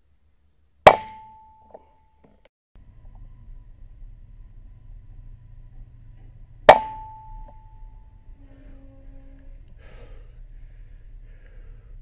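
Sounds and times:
air rifle shot with ringing tone: 0:00.8 - 0:02.2, 0:06.6 - 0:08.0.

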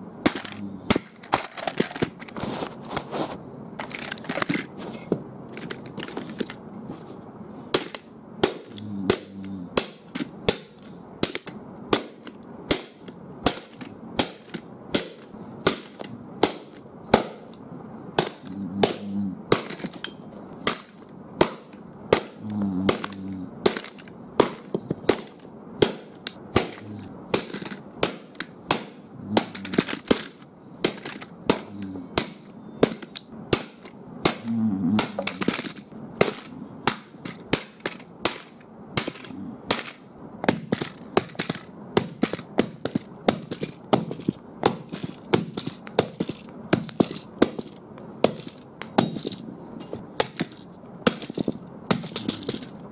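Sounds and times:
plastic cracking and breaking: 0:20.7 - 0:34.4.

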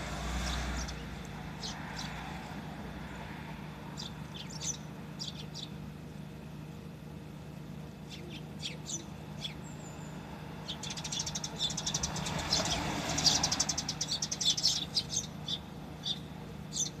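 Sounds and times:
vehicle passing by: 0:00.0 - 0:05.2, 0:09.1 - 0:15.5
sparrows chirping: 0:00.0 - 0:17.0.

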